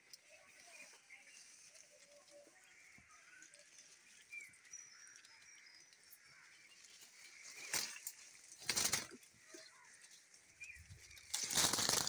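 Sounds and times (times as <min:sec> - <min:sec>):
faint bird chirps: 0:00.0 - 0:12.0
rustling bursts: 0:07.6 - 0:09.2, 0:11.2 - 0:12.0.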